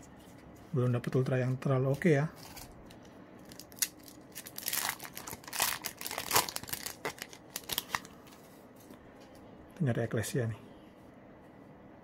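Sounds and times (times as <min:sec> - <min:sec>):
foil wrapper crinkling and tearing: 0:03.4 - 0:08.4.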